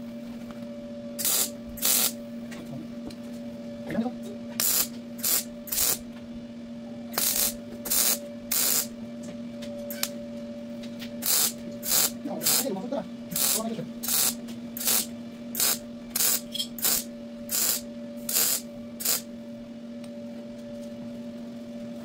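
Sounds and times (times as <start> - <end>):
steady hum: 0.0 - 22.0
electric arc welding bursts: 1.2 - 2.2, 4.6 - 6.0, 7.2 - 8.9, 11.2 - 12.7, 13.3 - 19.3.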